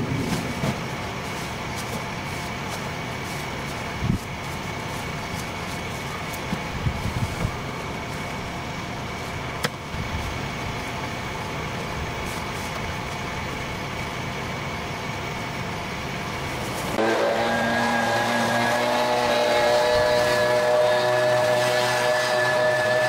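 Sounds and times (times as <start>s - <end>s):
low rumble: 0.0s - 5.3s.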